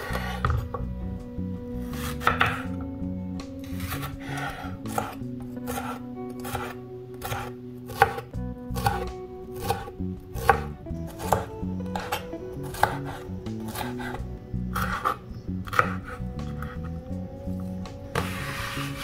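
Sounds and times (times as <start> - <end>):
knife slicing pepper on wood: 1.9 - 2.7, 3.6 - 14.2, 14.8 - 16.8.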